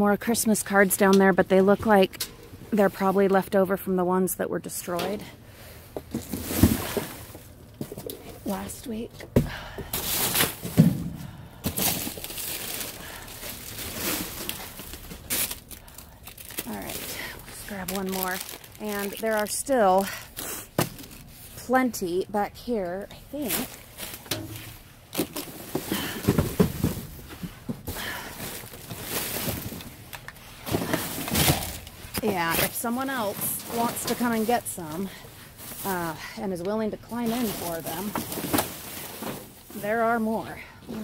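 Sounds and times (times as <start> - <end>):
plastic and cardboard rustling: 6.0 - 9.0, 9.9 - 21.9, 23.2 - 36.2, 37.0 - 41.0.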